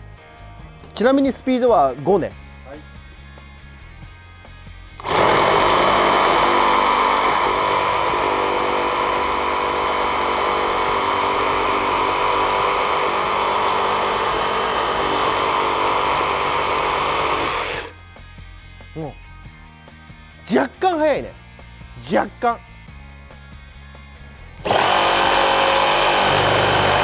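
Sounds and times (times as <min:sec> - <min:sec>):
reciprocating saw cutting timber: 0:05.0 - 0:17.9, 0:24.6 - 0:27.0.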